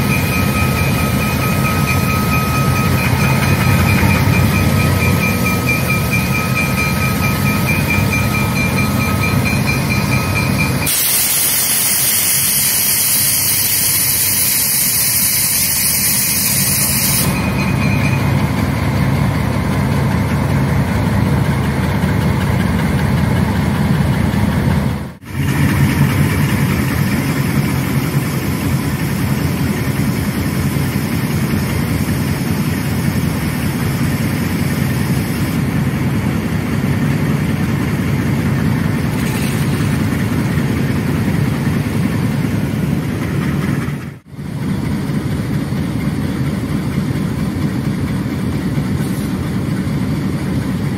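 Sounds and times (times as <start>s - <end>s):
diesel locomotives running under load: 0.0s - 50.9s
loud hiss: 10.9s - 17.4s.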